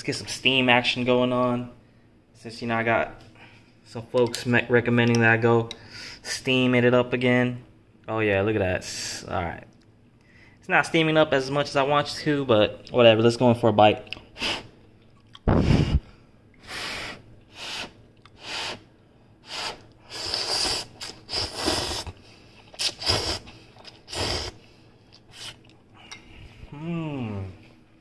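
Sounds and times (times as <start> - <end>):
person blowing on food: 15.5 - 22.1, 22.8 - 23.5, 24.1 - 24.6
person humming mm: 26.7 - 27.7.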